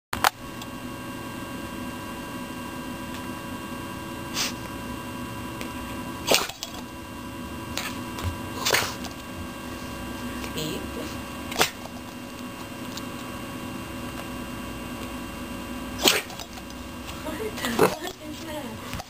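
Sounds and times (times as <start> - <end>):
electrical hum: 0.2 - 19.0
dog sneezing: 4.3 - 4.6, 6.2 - 6.6, 8.6 - 9.1, 11.5 - 11.9, 16.0 - 16.4.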